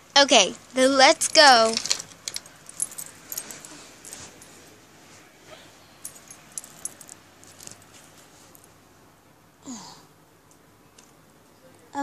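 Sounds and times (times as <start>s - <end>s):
steady low hiss: 0.0s - 12.0s
plastic toys clicking and jingling: 1.1s - 4.5s.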